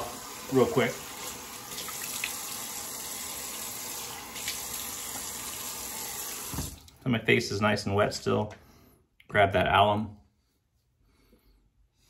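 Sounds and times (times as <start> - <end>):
faucet running: 0.0 - 7.0.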